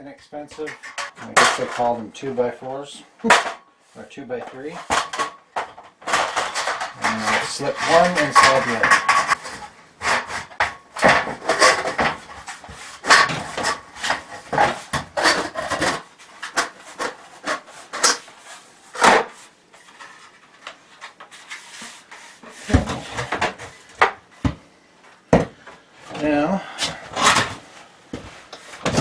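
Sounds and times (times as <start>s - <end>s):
metal channels scraping and clattering: 0.3s - 3.6s, 4.3s - 19.0s.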